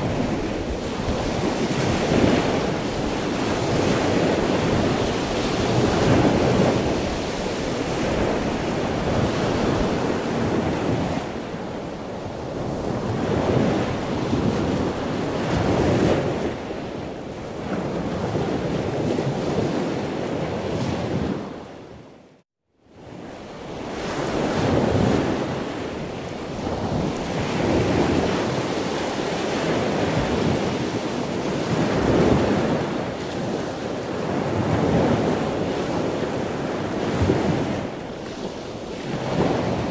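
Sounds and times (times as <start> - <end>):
ocean waves washing in: 0.0 - 21.6.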